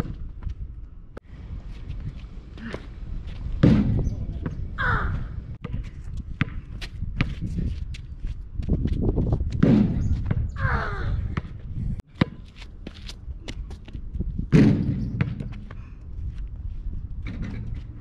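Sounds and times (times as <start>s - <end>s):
basketball bouncing on asphalt: 2.6s - 10.6s, 11.4s - 15.8s.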